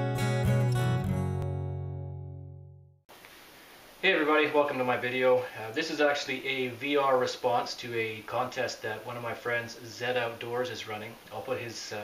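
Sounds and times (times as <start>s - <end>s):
acoustic guitar strumming: 0.0s - 2.7s.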